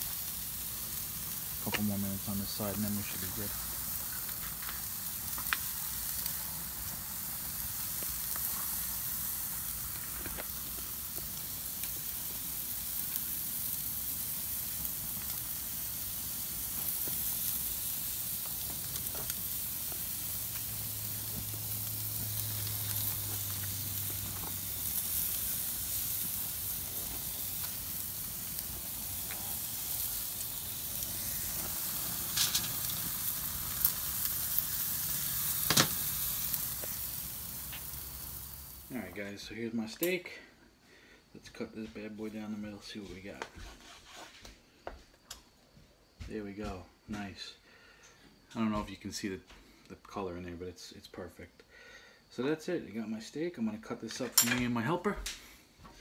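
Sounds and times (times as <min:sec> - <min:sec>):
steaks sizzling on a grill: 0:00.0 - 0:40.2.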